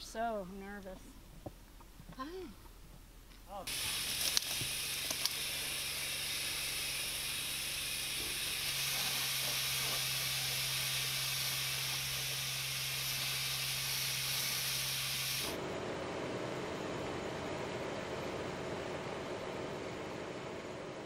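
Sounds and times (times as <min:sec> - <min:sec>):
low steady hum: 0:00.0 - 0:12.6
hose spraying water: 0:03.7 - 0:15.6.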